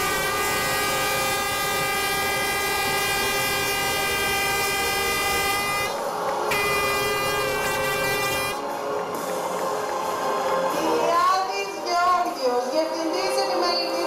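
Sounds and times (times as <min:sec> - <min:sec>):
loud sustained multi-pitch tone: 0:00.0 - 0:08.7
noisy background: 0:00.0 - 0:14.0.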